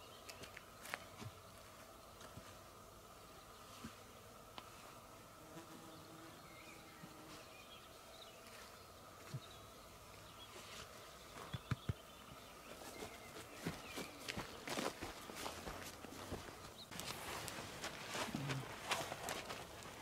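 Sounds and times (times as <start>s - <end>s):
footsteps on stony ground: 12.7s - 20.0s.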